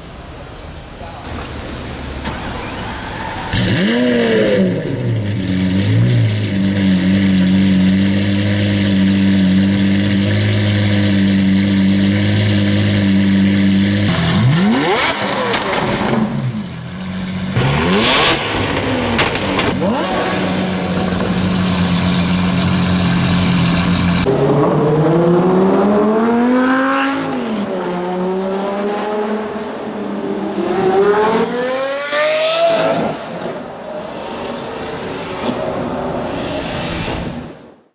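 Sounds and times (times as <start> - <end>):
sports car engine revving: 3.5 - 33.4.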